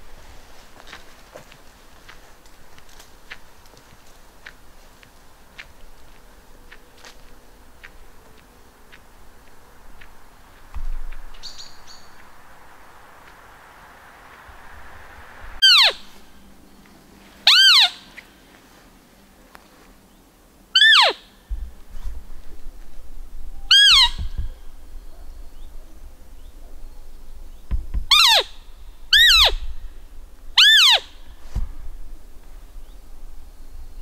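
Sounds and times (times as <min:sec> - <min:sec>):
deer call squeaks: 0:15.6 - 0:16.2, 0:17.4 - 0:18.2, 0:20.7 - 0:21.4, 0:23.7 - 0:24.3, 0:28.1 - 0:29.7, 0:30.6 - 0:31.2.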